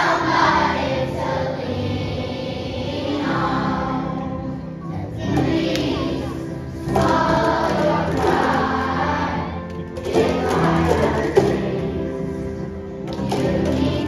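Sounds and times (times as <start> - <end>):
children's choir singing: 0.0 - 14.0.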